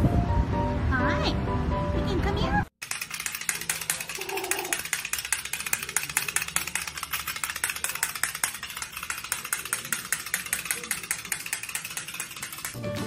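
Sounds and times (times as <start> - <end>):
toy clicking on tile floor: 2.8 - 12.9.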